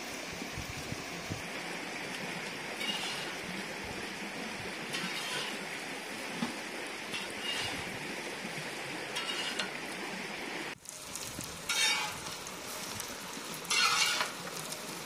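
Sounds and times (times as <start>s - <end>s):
fish sizzling in oil: 0.0s - 10.1s, 10.7s - 15.0s
metal spatula scraping pan: 2.8s - 3.4s, 4.9s - 5.6s, 7.1s - 7.9s, 9.2s - 9.8s, 11.7s - 12.3s, 13.7s - 14.4s.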